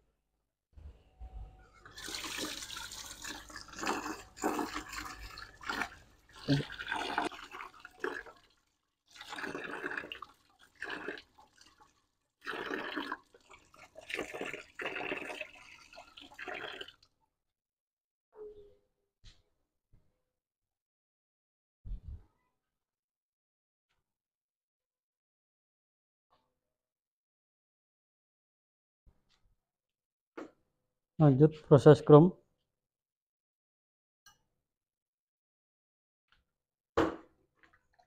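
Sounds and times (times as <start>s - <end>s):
water pouring and splashing: 1.8s - 17.0s.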